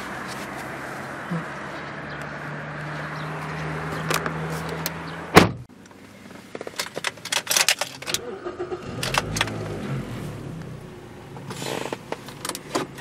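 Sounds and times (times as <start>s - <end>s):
car door shutting: 5.3s - 5.7s.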